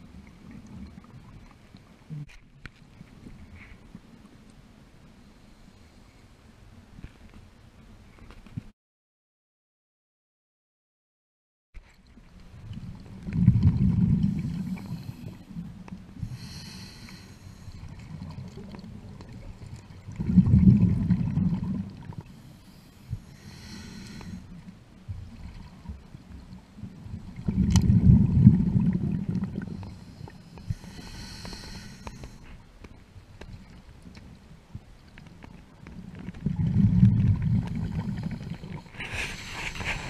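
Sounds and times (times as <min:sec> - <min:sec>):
underwater exhalation bubbles: 0:13.2 - 0:14.9, 0:18.0 - 0:22.1, 0:27.4 - 0:29.8, 0:36.4 - 0:40.0
regulator inhalation hiss: 0:16.3 - 0:17.7, 0:22.4 - 0:24.4, 0:30.0 - 0:32.4.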